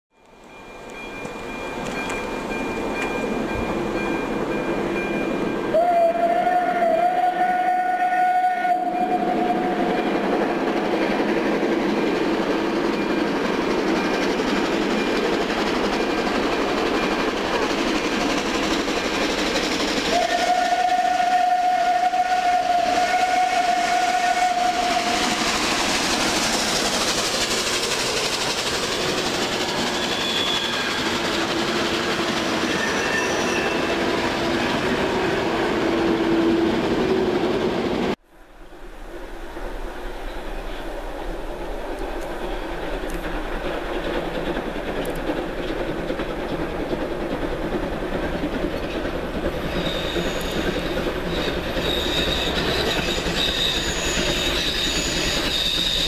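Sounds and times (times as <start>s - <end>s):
train wheels on rails: 0.2s - 56.0s
steam locomotive whistle: 5.6s - 10.4s, 19.9s - 26.9s, 29.7s - 37.2s, 49.6s - 56.0s.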